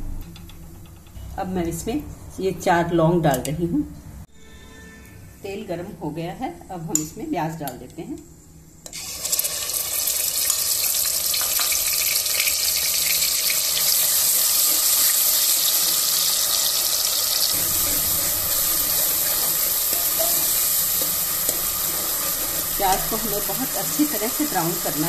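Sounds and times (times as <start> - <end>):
onion paste sizzling in oil: 8.9 - 25.0.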